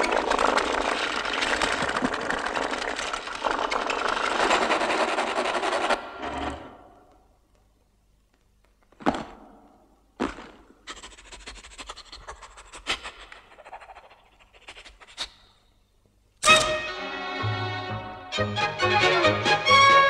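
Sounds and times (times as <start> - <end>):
scratchy clicking and rustling: 0.0 - 6.6.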